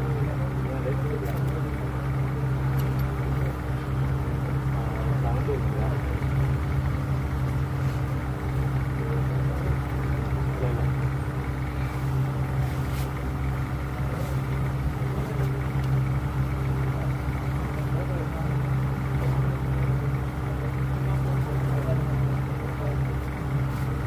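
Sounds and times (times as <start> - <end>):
low motor hum: 0.0 - 24.0
faint clicks: 2.7 - 3.2.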